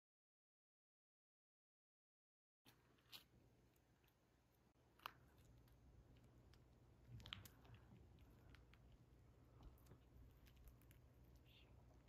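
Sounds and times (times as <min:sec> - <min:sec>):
low steady hum: 0:02.7 - 0:12.0.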